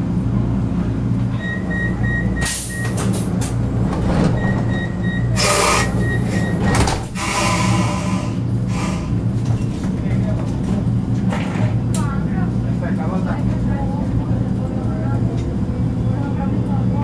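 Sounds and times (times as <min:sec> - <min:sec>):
train hum: 0:00.0 - 0:17.0
sliding doors hissing: 0:05.3 - 0:09.2.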